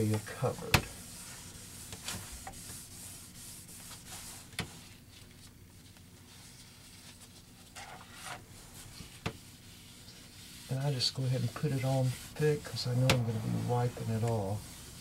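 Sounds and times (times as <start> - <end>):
rag rubbing on wood: 1.2 - 4.4, 7.8 - 15.0.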